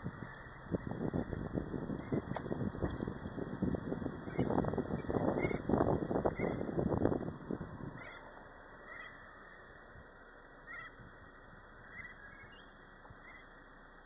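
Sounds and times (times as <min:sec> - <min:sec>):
car rumbling on dirt track: 0:00.0 - 0:08.4.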